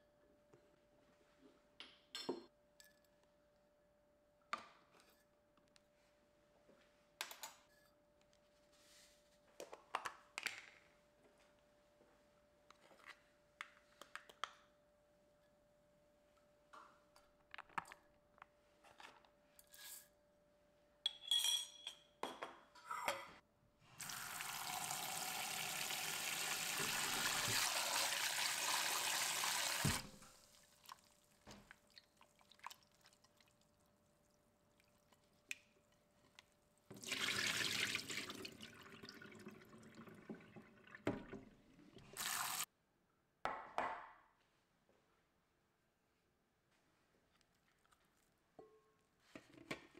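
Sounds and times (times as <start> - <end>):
kitchenware clinking: 21.0 - 23.4
tap water running into bowl: 24.0 - 31.0, 36.9 - 42.6
water poured into sink: 24.0 - 33.6, 36.9 - 42.7.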